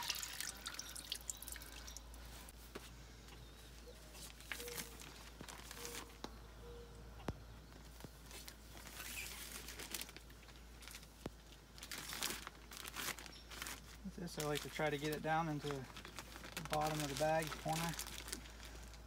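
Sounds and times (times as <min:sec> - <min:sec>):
plastic bag crinkling: 0:04.2 - 0:06.2, 0:08.3 - 0:19.0.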